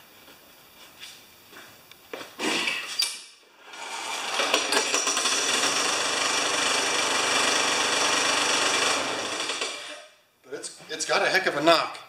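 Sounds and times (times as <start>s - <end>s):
lawn mower engine starting: 3.6s - 9.9s.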